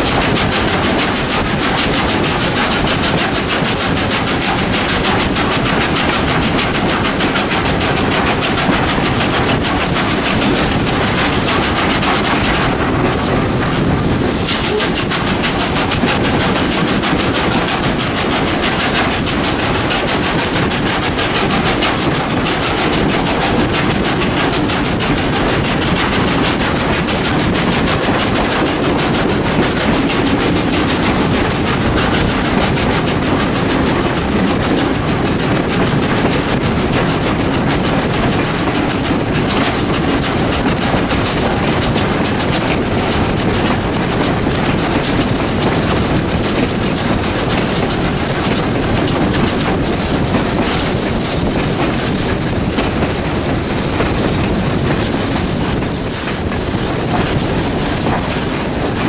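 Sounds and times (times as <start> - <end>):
steam locomotive exhaust beating: 0.0 - 59.0
wind on microphone: 0.0 - 59.0.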